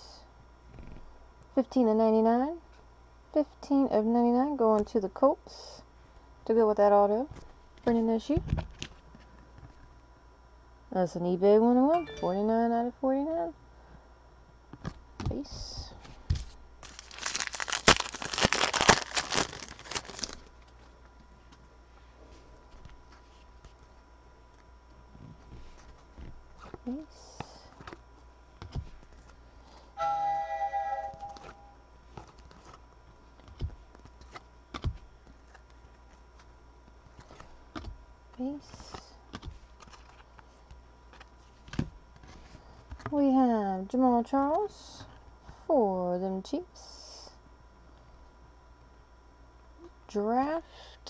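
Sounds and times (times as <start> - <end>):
trading cards shuffling: 16.3 - 20.9, 31.1 - 43.1
foil wrapper crinkling and tearing: 16.8 - 20.8.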